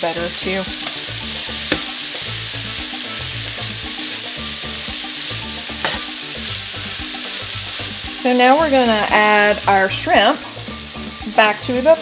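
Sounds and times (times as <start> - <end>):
vegetables sizzling in pan: 0.0 - 12.0
utensil knocking against pan: 1.6 - 2.0, 5.8 - 6.1.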